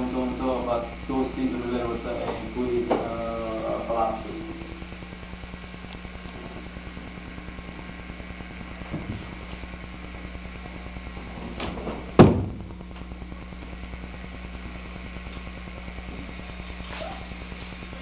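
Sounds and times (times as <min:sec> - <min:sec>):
steady electrical hum: 0:00.0 - 0:18.0
thump on wooden floor: 0:08.9 - 0:09.3, 0:11.6 - 0:12.7.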